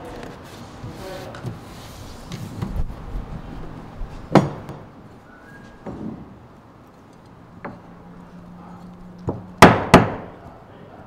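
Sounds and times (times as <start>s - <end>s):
sharp loud knocks: 4.3s - 4.9s, 9.3s - 10.4s.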